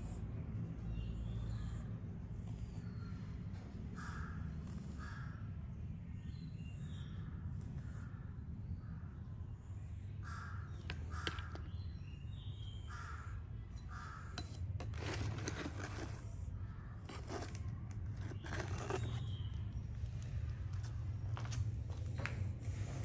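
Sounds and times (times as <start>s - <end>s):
crows cawing: 4.0s - 5.3s, 10.2s - 11.6s, 12.9s - 14.4s.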